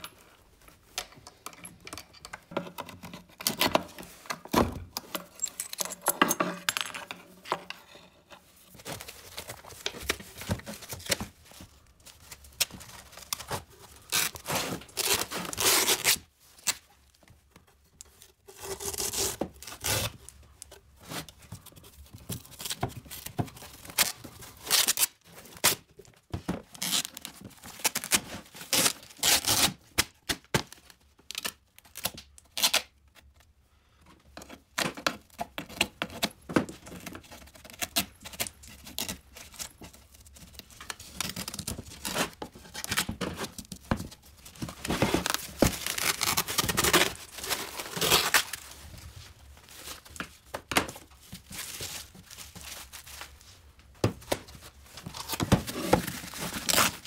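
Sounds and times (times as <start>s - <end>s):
scraping and tearing on wood: 55.0s - 57.0s.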